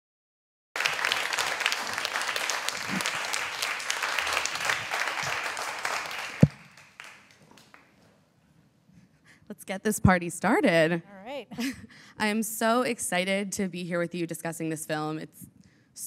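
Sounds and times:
audience applauding: 0.8 - 8.0.

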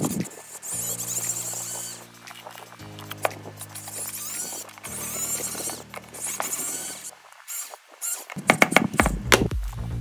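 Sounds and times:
rapid high-pitched squeaking: 0.0 - 9.2
sustained music tone: 0.4 - 7.3.

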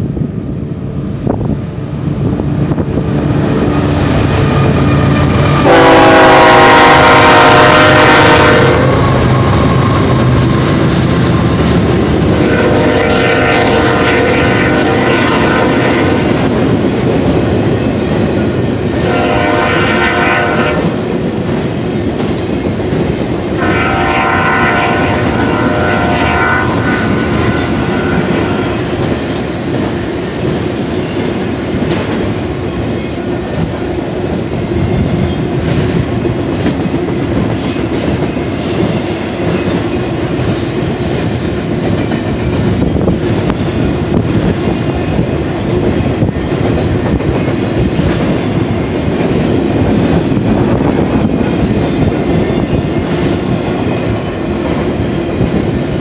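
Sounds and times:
diesel locomotives rumbling: 0.0 - 56.0
locomotive horn blasts: 4.4 - 10.2, 12.4 - 16.3, 19.0 - 21.0, 23.6 - 28.9.

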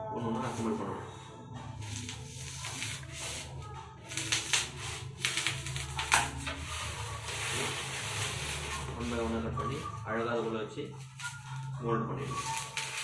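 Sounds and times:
scratching on polystyrene foam: 1.8 - 9.9, 11.0 - 13.0.

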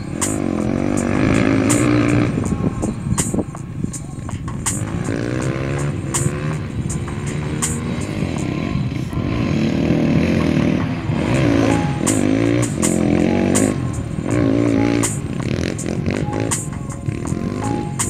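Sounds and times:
sharp percussion hits: 0.0 - 18.0
wavering melody: 0.0 - 18.0.

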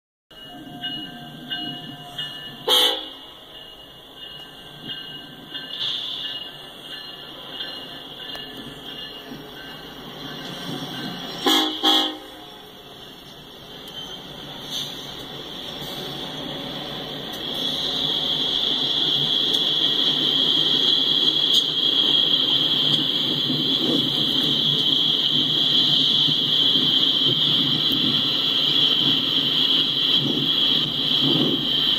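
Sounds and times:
diesel locomotive engine rumble: 0.3 - 31.9
train horn blast: 2.0 - 3.3, 11.4 - 12.8.

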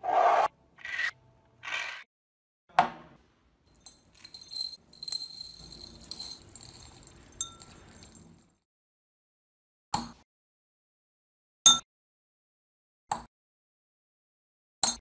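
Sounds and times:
crystals clinking into glass beaker: 3.8 - 8.6.

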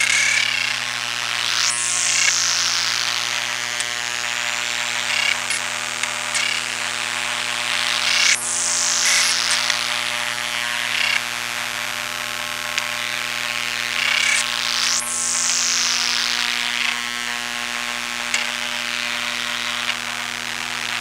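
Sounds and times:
crackly bursts: 0.0 - 21.0
electrical hum: 0.0 - 21.0
sharp clicks: 4.9 - 6.8.

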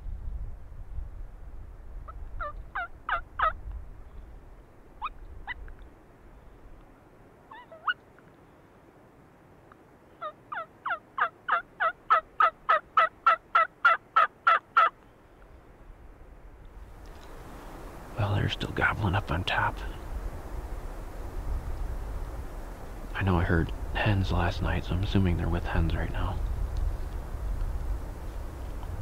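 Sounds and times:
turkey yelping: 2.1 - 3.6, 7.5 - 8.0, 10.2 - 14.9.

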